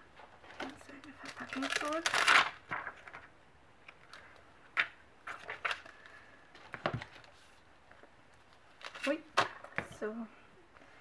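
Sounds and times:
plastic crinkling: 0.6 - 3.3.

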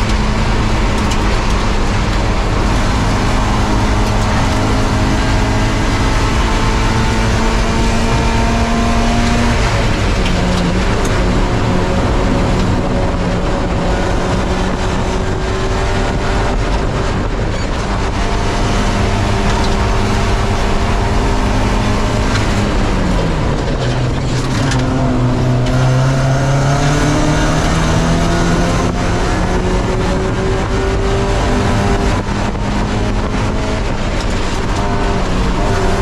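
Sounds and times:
race car engine revving: 0.0 - 36.0
tyre and wind noise: 0.0 - 36.0.

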